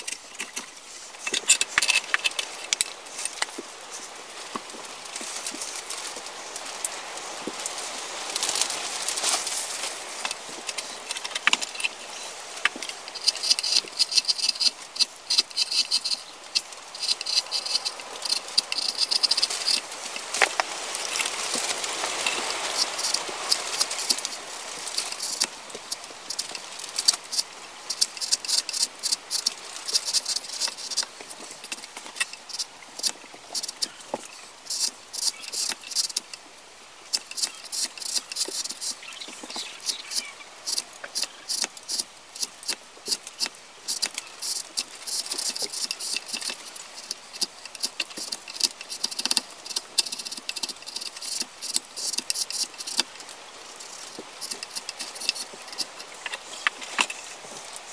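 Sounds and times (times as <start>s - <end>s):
gouge scraping wood: 12.7s - 19.9s, 37.1s - 53.2s, 53.8s - 57.9s.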